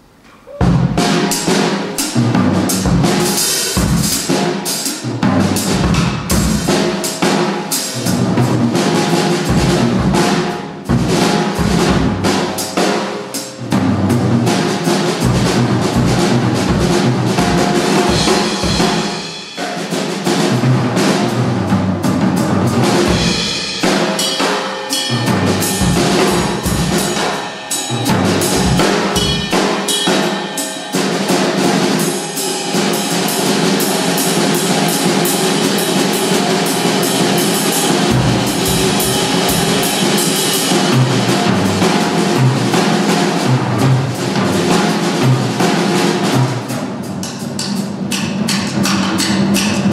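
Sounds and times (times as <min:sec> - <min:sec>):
snare and bass drum rolls: 0:00.6 - 0:49.9
ringing cymbals: 0:23.1 - 0:42.4.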